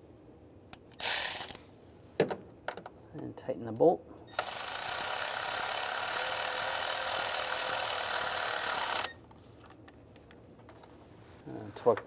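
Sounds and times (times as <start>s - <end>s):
electric ratchet motor running: 1.0s - 1.6s, 4.3s - 9.2s.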